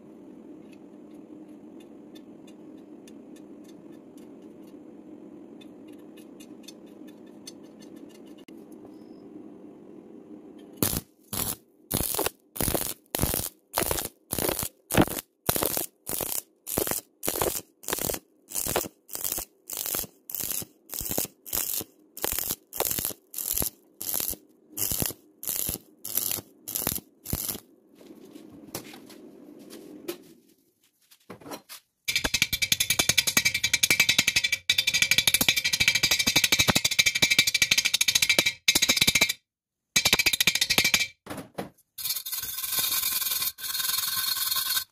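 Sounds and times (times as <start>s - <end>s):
welding arc crackling: 10.8s - 27.7s.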